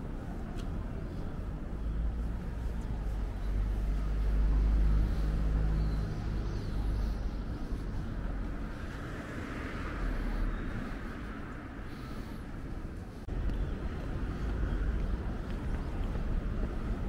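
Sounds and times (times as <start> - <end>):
outdoor street noise: 0.0 - 17.0
vehicle engine passing by: 2.0 - 12.3.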